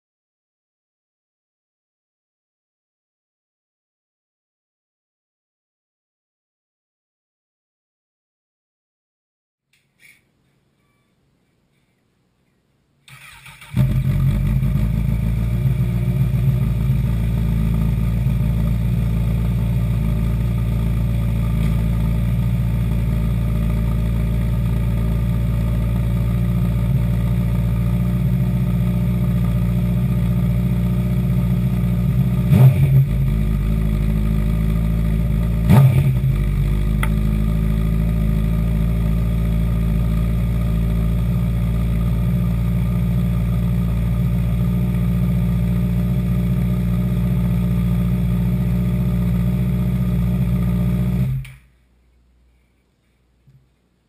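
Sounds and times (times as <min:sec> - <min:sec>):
engine throttle blips: 0:13.1 - 0:51.7
motorcycle engine idling: 0:13.3 - 0:51.6.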